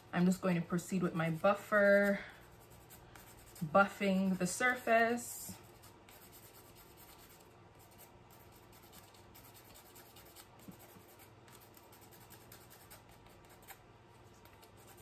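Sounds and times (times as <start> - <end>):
nail buffer scratching fingernail: 1.8 - 3.8, 5.7 - 13.8, 14.4 - 15.0.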